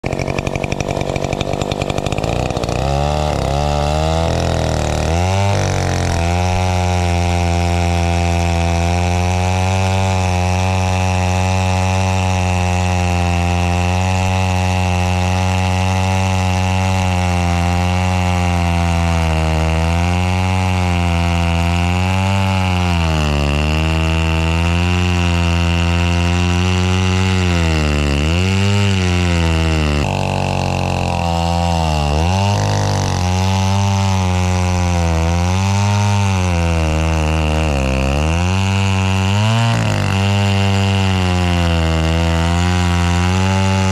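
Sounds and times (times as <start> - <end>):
chainsaw cutting a log: 0.0 - 43.9.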